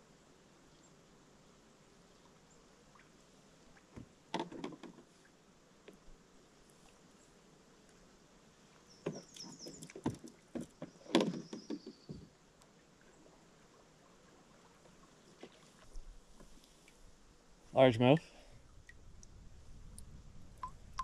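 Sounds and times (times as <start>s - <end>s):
knocks against a canoe hull: 9.0s - 12.3s.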